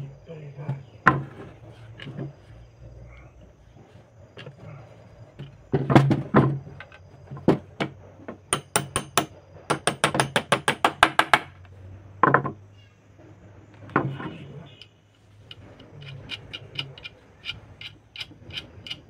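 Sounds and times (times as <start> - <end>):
hammer striking nails into wood: 8.5 - 11.6.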